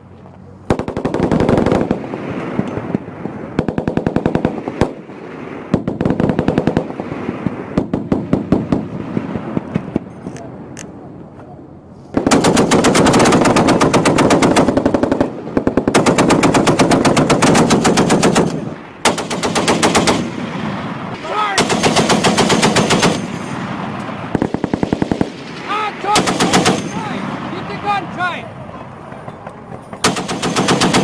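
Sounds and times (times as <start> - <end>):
heavy machine gun bursts: 21.6 - 23.6, 24.3 - 27.5, 30.0 - 31.0.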